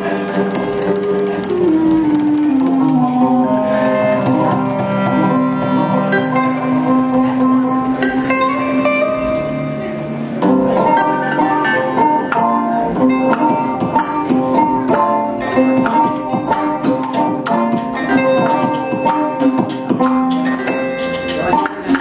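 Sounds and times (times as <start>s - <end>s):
hand drum fast rhythm: 0.0s - 8.8s, 13.2s - 22.0s
clarinet melody: 0.0s - 9.9s
plucked lutes: 0.0s - 22.0s.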